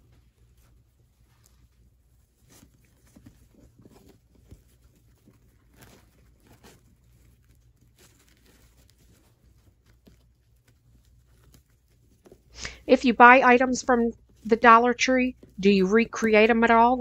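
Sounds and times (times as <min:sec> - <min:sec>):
ribbon rustling and clicking: 0:00.0 - 0:12.8
low steady hum: 0:00.0 - 0:17.0.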